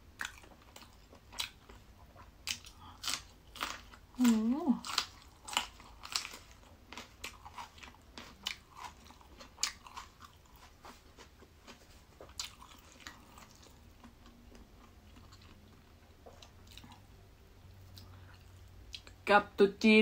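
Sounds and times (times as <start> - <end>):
chili pepper crunching: 2.4 - 17.0.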